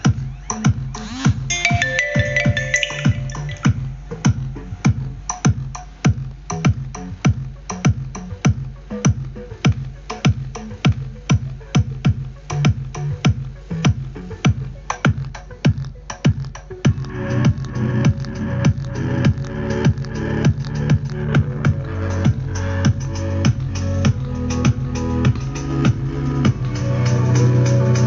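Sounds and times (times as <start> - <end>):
electronic dance music: 1.5 - 3.8.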